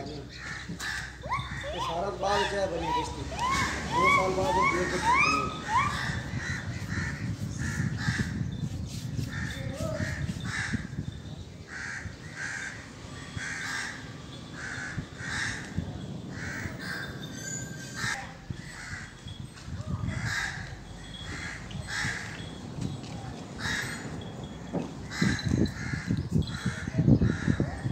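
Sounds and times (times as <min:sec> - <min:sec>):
crows cawing: 0:00.3 - 0:08.3, 0:11.7 - 0:17.2, 0:18.0 - 0:19.3, 0:20.2 - 0:22.4, 0:23.6 - 0:24.3, 0:25.0 - 0:27.8.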